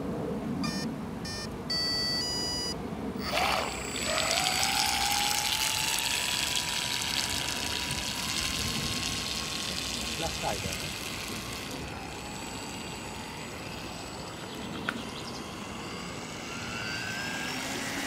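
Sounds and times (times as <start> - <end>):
speed controller beeps: 0.6 - 4.0
electric motor whine: 3.2 - 18.0
water rushing and spray hissing: 3.5 - 12.4.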